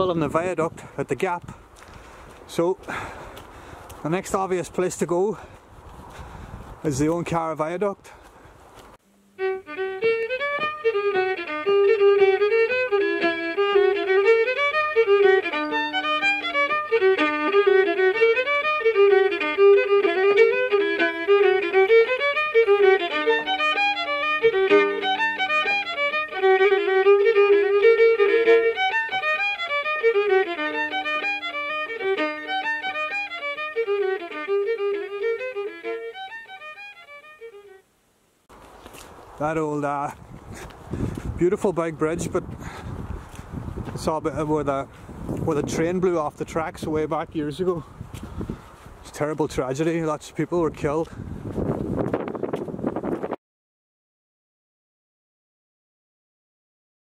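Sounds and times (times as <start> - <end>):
fiddle tune: 0.0 - 37.9, 39.4 - 53.3.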